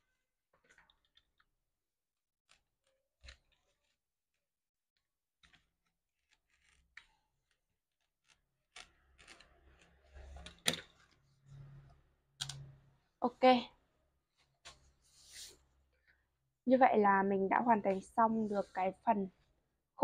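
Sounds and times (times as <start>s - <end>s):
craft knife cutting cardboard: 2.5s - 10.8s.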